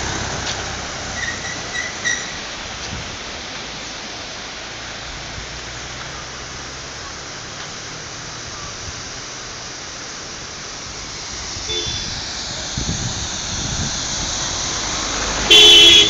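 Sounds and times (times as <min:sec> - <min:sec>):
waterfall rushing: 0:00.0 - 0:16.0
vehicle horn honking: 0:11.7 - 0:12.1, 0:15.5 - 0:16.0.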